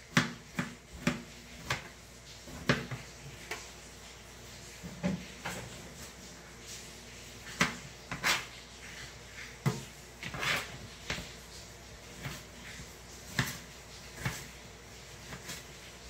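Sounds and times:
knife chopping on cutting board: 0.0 - 1.9, 2.5 - 3.0, 13.3 - 13.6, 14.2 - 14.5.

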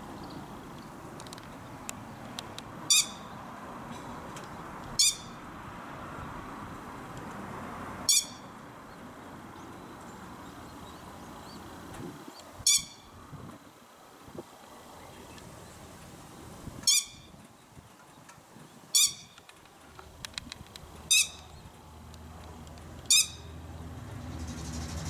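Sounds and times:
steady background hiss: 0.0 - 25.0
lapwing calls: 2.9 - 3.3, 12.4 - 13.2.

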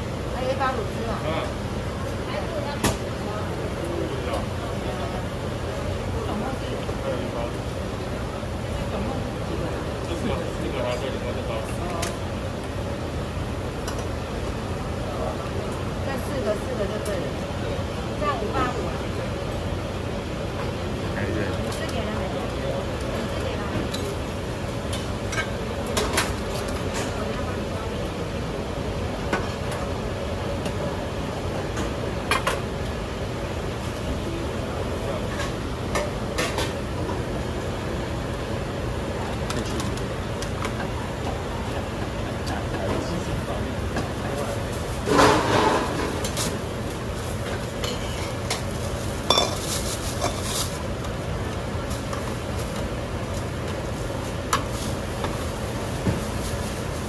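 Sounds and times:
utensils clinking against bowls: 47.8 - 50.6.

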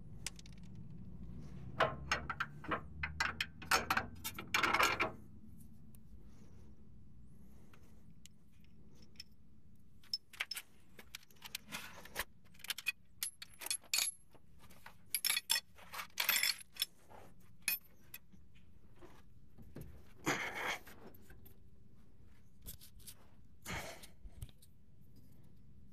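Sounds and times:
metal hardware and tools clinking: 12.6 - 14.3, 15.1 - 16.9.

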